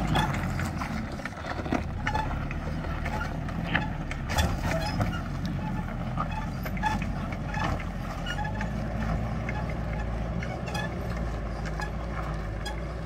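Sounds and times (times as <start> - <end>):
truck engine running: 0.0 - 13.0.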